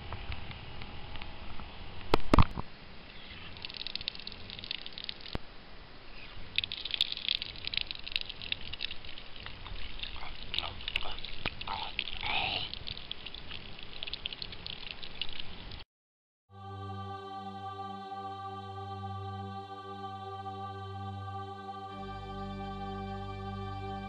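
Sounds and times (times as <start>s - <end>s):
water pouring and splashing: 3.4s - 5.4s, 6.5s - 15.8s.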